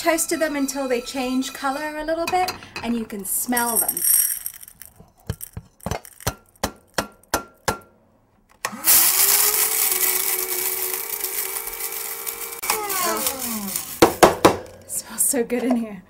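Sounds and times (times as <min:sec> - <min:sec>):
spice grinder motor whining: 0:08.6 - 0:14.2.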